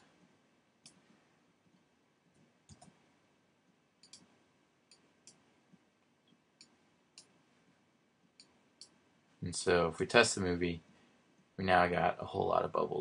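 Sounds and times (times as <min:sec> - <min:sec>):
mouse and keyboard clicks: 0:02.7 - 0:03.0, 0:04.0 - 0:04.3.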